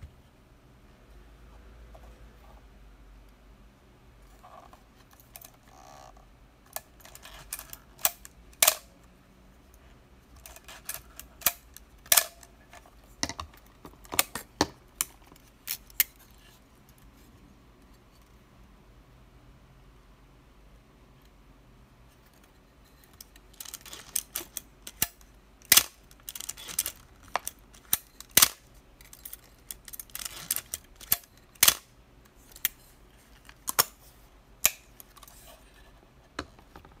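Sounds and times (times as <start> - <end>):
film advance lever ratcheting: 23.3 - 31.8.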